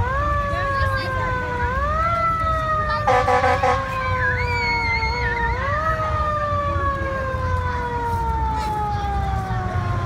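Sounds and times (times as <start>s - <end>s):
fire truck siren wailing: 0.0s - 10.0s
low engine rumble: 0.0s - 10.0s
loud horn blare: 3.0s - 4.0s.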